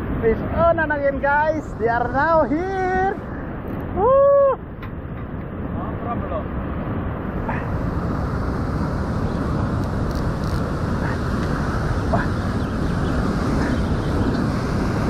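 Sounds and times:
heavy surf breaking on rocks: 0:05.6 - 0:15.0.

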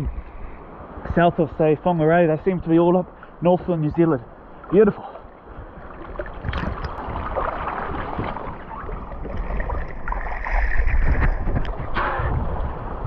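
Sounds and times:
wind rumbling on microphone: 0:00.0 - 0:01.5, 0:05.3 - 0:13.0
water splashing and sloshing: 0:02.1 - 0:13.0.

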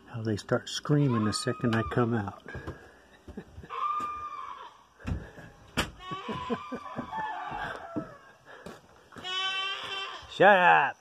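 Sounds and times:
goats screaming: 0:00.9 - 0:02.4, 0:03.6 - 0:04.9, 0:05.9 - 0:08.3, 0:09.2 - 0:10.7.

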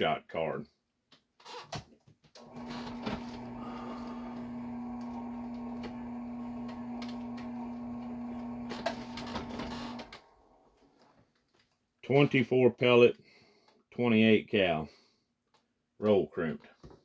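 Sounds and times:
drill press motor humming: 0:02.4 - 0:10.7.

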